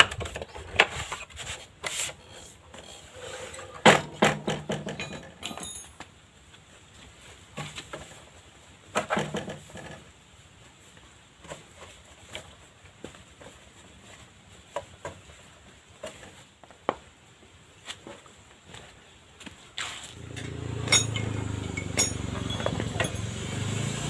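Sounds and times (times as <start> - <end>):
parts clattering: 0.0 - 6.2, 19.8 - 23.7.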